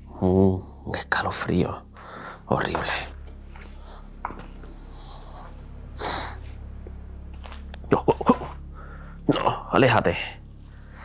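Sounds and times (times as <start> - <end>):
low steady rumble: 0.0 - 11.0
man breathing out through nose: 1.9 - 2.5, 8.7 - 9.2, 10.6 - 11.0.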